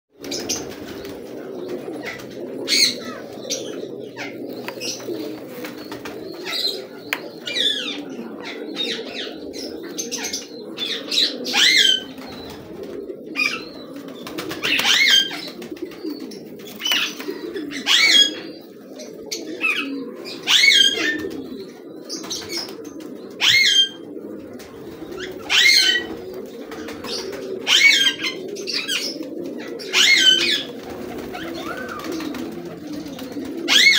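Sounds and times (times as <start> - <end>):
wings flapping: 0.2 - 3.7, 4.3 - 7.6, 12.0 - 13.1, 13.8 - 17.4, 24.4 - 27.6, 30.3 - 33.9
pigeons cooing: 0.2 - 33.9.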